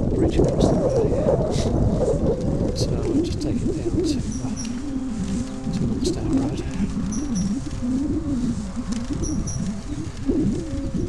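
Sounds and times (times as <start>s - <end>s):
low rumble on microphone: 0.0s - 11.0s
low wavering tone: 1.9s - 11.0s
small bird chirping: 3.8s - 11.0s.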